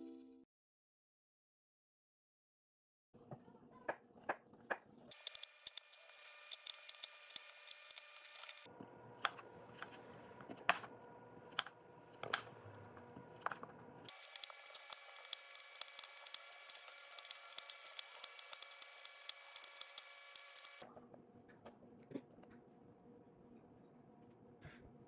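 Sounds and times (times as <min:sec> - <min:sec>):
knife chopping on wooden board: 0:11.5 - 0:12.5.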